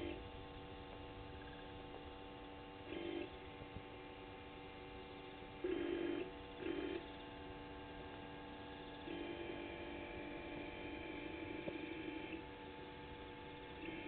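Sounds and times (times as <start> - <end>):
electrical hum: 0.0 - 14.0
camera motor whirring: 5.5 - 14.0.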